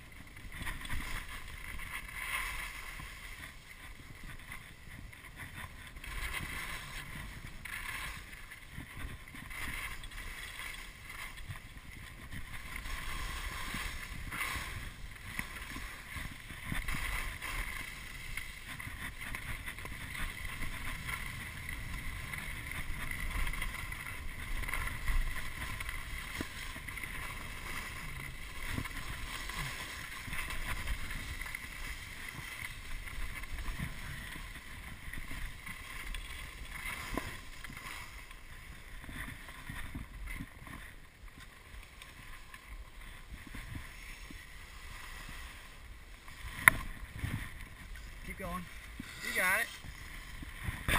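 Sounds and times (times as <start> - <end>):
skis scraping over snow: 0.0 - 50.9
wind buffeting microphone: 43.2 - 50.9.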